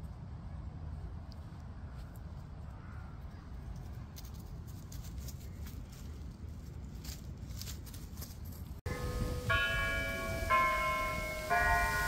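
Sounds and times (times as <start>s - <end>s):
bells ringing notes: 8.9s - 12.0s.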